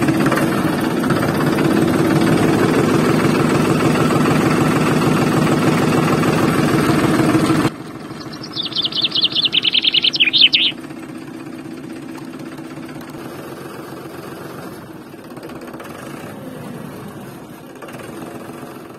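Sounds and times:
bird trilling: 8.0 - 10.8.

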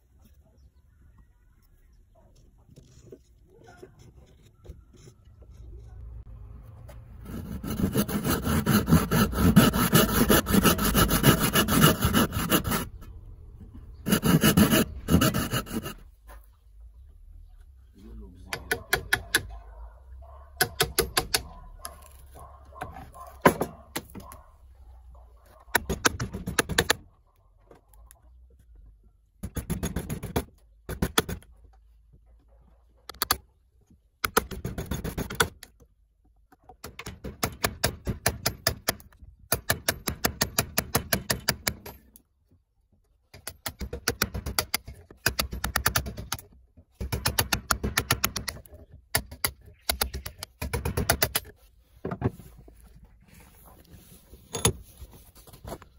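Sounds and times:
chisel tapping wood: 18.5 - 19.5.

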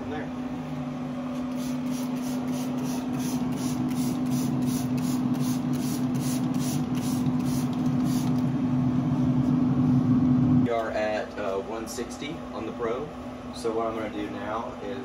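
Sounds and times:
steady low hum: 0.0 - 15.0
spray bottle squirting: 1.5 - 8.4.

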